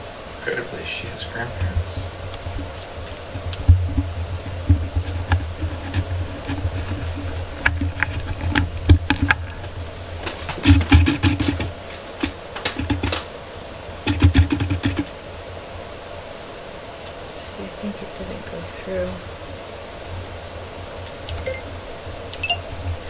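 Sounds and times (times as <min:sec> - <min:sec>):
dull low thumps: 0:01.5 - 0:11.8.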